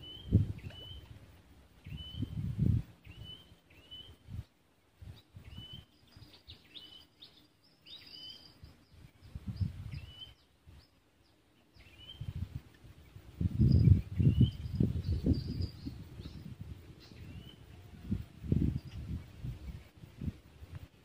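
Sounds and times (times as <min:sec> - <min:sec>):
bird whistling calls: 0:00.0 - 0:01.1, 0:01.8 - 0:02.4, 0:03.0 - 0:04.2, 0:05.4 - 0:08.7, 0:09.6 - 0:10.5, 0:11.8 - 0:12.3, 0:13.7 - 0:17.7.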